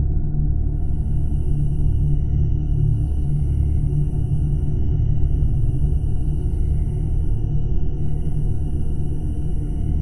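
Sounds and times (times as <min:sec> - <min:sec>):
deep low drone: 0:00.0 - 0:10.0.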